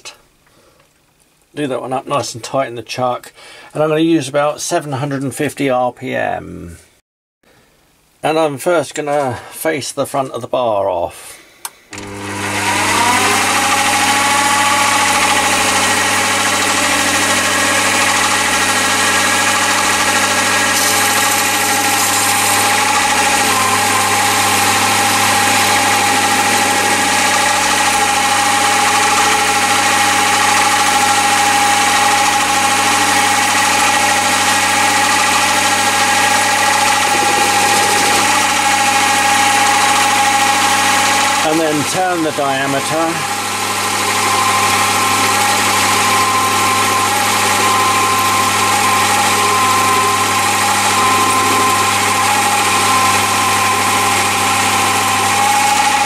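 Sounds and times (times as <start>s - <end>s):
tool cutting steel bar: 11.9s - 43.4s, 44.6s - 56.0s
lathe motor and gear whine: 11.9s - 56.0s.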